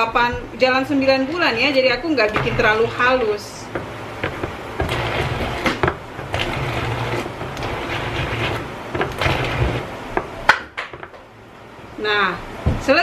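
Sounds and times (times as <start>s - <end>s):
stick blender motor whirring: 2.3s - 10.0s
blender knocking in bowl: 3.7s - 9.9s.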